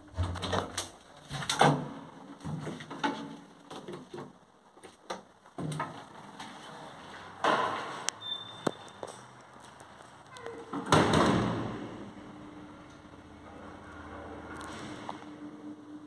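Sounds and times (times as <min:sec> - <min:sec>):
elevator door clunks and knocks: 0:10.8 - 0:12.0.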